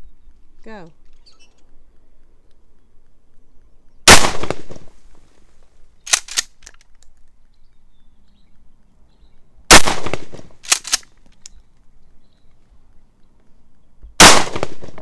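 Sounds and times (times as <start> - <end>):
shotgun blast: 4.1 - 4.9, 9.7 - 10.4, 14.2 - 15.0
shotgun pump racking clicks: 6.0 - 7.4, 10.6 - 11.6.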